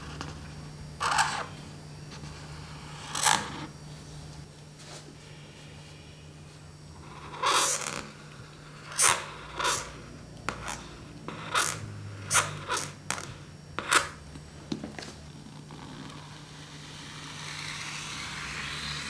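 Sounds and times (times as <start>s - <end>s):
faint steady hum: 0.0s - 19.0s
marker scratching on paper: 7.1s - 8.2s, 8.8s - 14.2s.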